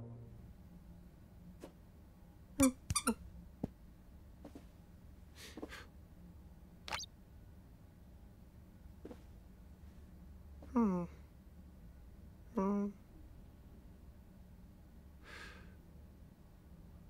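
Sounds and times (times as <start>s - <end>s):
cartoon squeaks: 2.6s - 3.2s, 6.9s - 7.1s.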